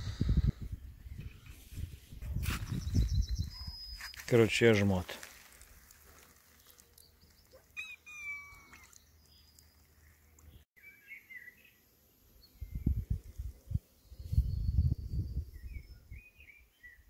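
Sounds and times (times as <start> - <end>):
faint bird chirps: 2.6 - 4.3, 6.6 - 11.8.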